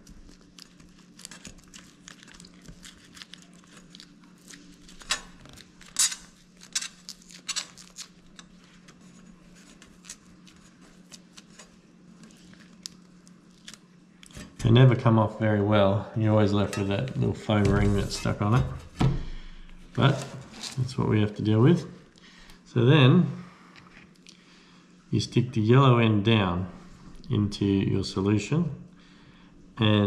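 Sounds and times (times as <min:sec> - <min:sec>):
adhesive patch crackling and tearing: 0:00.0 - 0:09.0.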